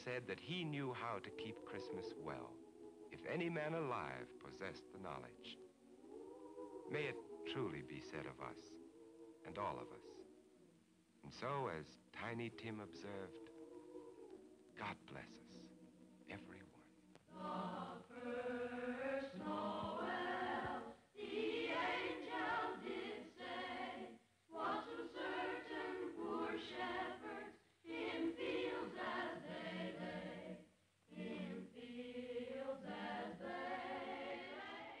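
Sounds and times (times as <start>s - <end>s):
choir singing: 0.0s - 10.4s, 11.3s - 35.0s.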